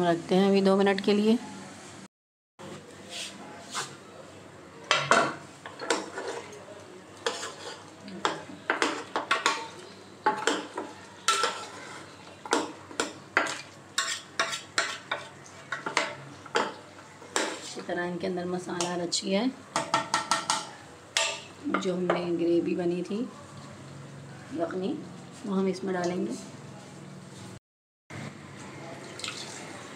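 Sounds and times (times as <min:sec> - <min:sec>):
masala sizzling: 0:00.0 - 0:28.7
ladle scraping metal pot: 0:07.2 - 0:07.9, 0:11.3 - 0:12.2, 0:13.4 - 0:16.0.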